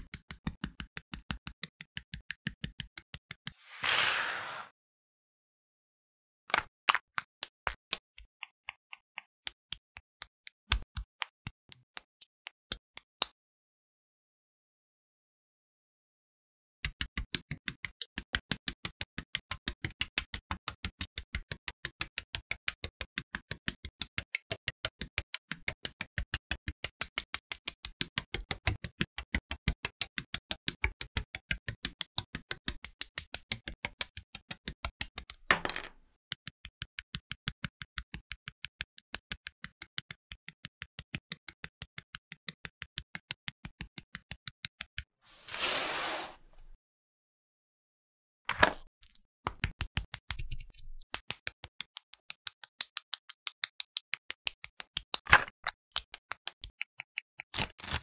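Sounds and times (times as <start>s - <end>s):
short hiss: 3.6s - 4.7s, 45.3s - 46.4s.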